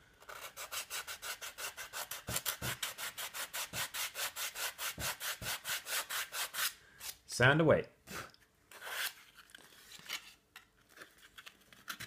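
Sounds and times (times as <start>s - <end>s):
sandpaper rubbing on foam: 0.3s - 6.8s.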